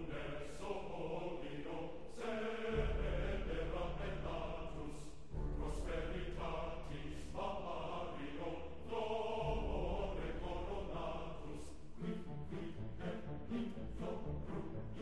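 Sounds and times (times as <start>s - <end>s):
choir singing held chords: 0.0s - 15.0s
steady low bass: 2.7s - 8.1s, 9.4s - 11.5s.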